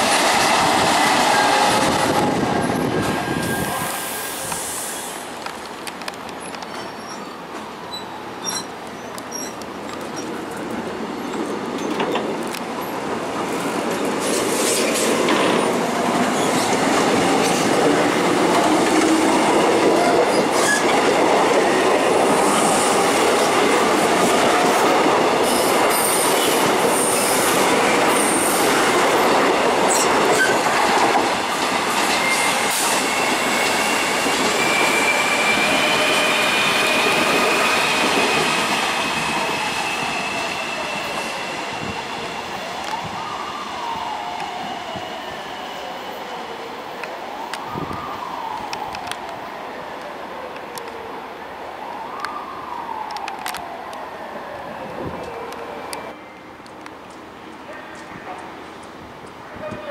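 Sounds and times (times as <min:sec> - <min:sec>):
train wheels clattering and squealing: 0:00.0 - 0:12.9, 0:13.5 - 0:46.6.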